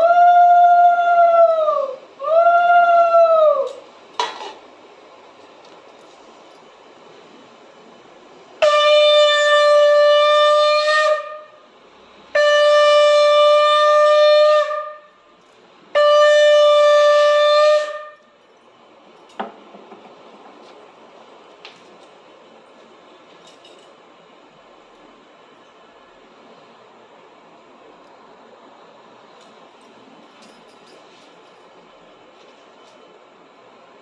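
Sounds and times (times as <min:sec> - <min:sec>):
conch shell blasts: 0:08.6 - 0:11.6, 0:12.3 - 0:15.2, 0:15.9 - 0:18.4.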